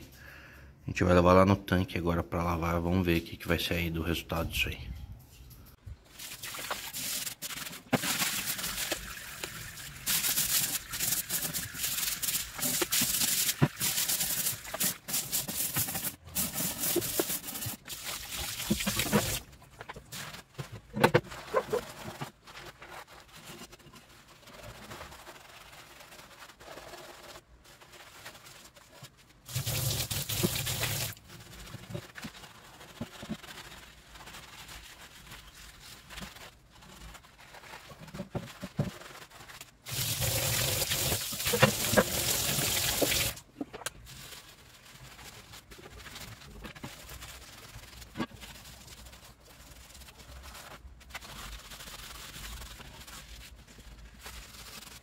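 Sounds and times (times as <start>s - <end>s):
rubbing and scrubbing: 6.0s - 55.0s
water running onto metal plate: 29.5s - 31.2s, 39.9s - 43.4s.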